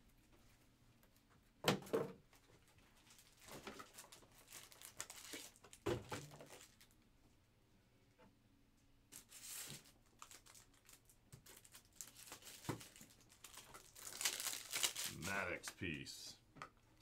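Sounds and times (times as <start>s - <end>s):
plastic packaging crinkling: 2.6s - 7.0s, 9.2s - 15.7s.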